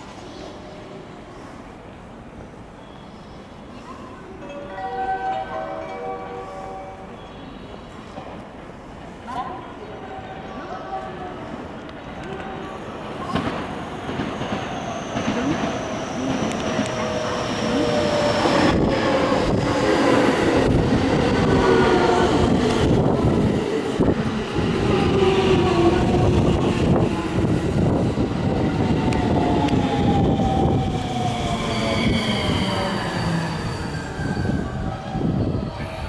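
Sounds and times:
train wheels rumbling: 0:11.0 - 0:36.0
rail joint clicks: 0:13.3 - 0:17.1, 0:28.8 - 0:30.0.

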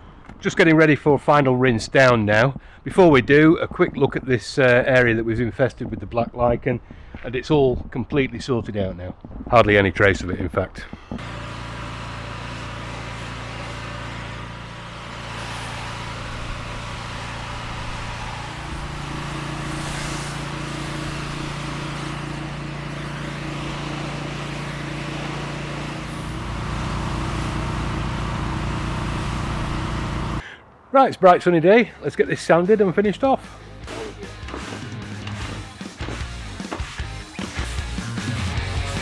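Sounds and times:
pressure washer engine running: 0:10.8 - 0:30.5, 0:33.4 - 0:39.0
water jet hissing on paving: 0:11.2 - 0:30.4.

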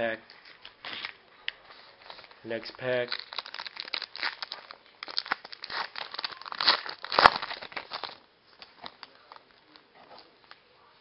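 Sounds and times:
wrapper crinkling and tearing: 0:02.0 - 0:09.8.

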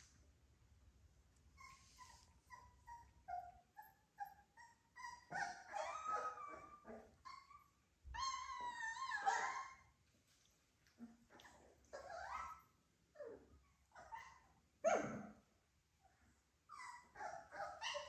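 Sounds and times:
puppies whimpering: 0:01.6 - 0:09.9.

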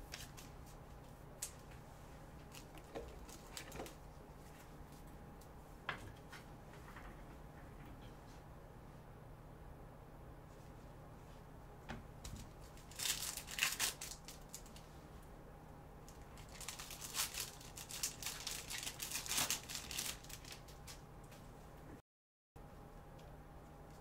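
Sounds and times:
plastic wrapper crinkling: 0:12.8 - 0:14.8, 0:16.1 - 0:21.0.

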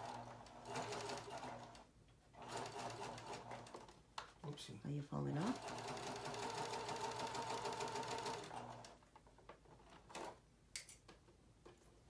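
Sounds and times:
electric sewing machine running: 0:00.0 - 0:01.8, 0:02.4 - 0:03.8, 0:05.4 - 0:08.9.

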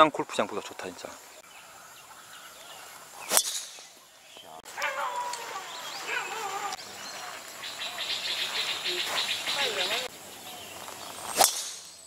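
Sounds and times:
golf club striking ball: 0:03.3 - 0:04.0, 0:11.4 - 0:12.0
wavering animal calls: 0:04.4 - 0:10.7.

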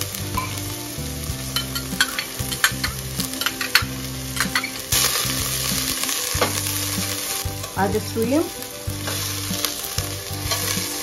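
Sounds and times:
onion and garlic sizzling in oil: 0:00.0 - 0:11.0.

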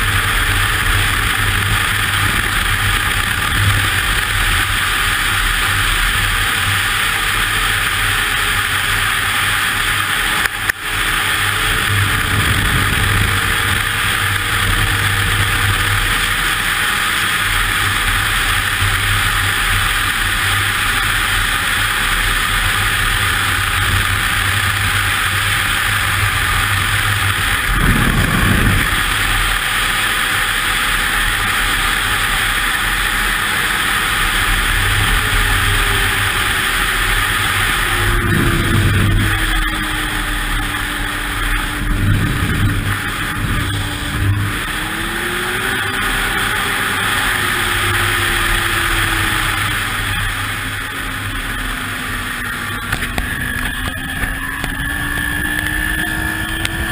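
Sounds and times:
snowmobile engine drone: 0:00.0 - 0:56.9
low rumble: 0:25.2 - 0:31.3.

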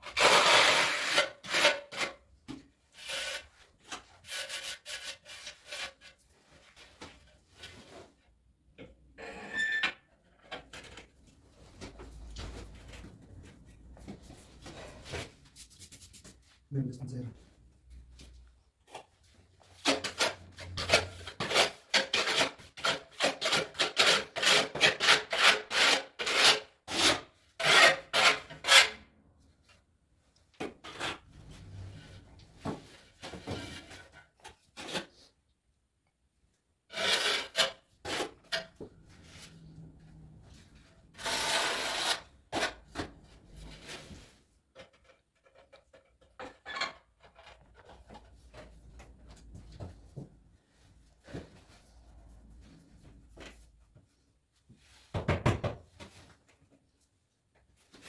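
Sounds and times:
trowel scraping adhesive: 0:00.0 - 0:02.2, 0:02.9 - 0:06.2, 0:36.9 - 0:38.8, 0:41.2 - 0:42.8.

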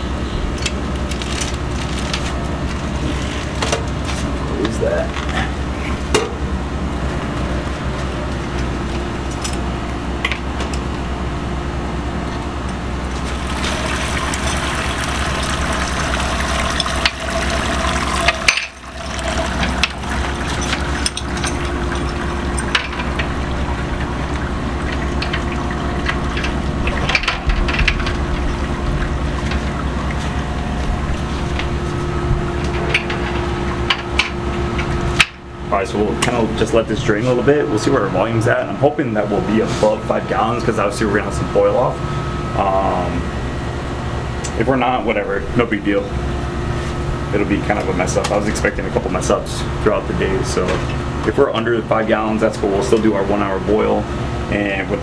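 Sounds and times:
liquid pouring into kettle: 0:13.2 - 0:27.0.

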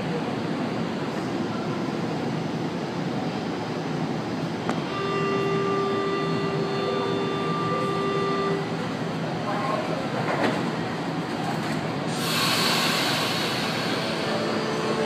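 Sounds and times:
train motors humming: 0:00.0 - 0:15.0
door-closing warning tone: 0:04.8 - 0:08.8.

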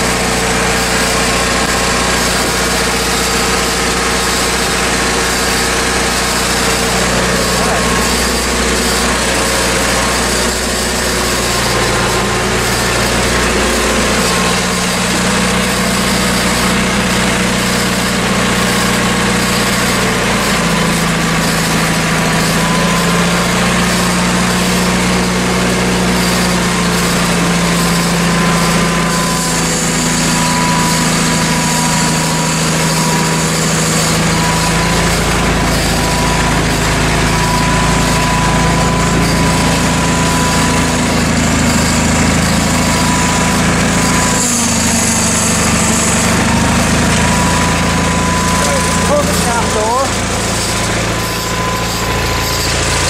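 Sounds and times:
lawn tractor engine running: 0:00.0 - 0:53.0
thin whine: 0:00.0 - 0:53.0.

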